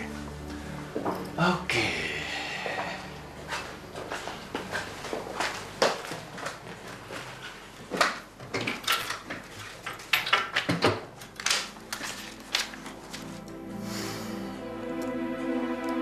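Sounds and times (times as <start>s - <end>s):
paper rustling: 11.3s - 13.5s.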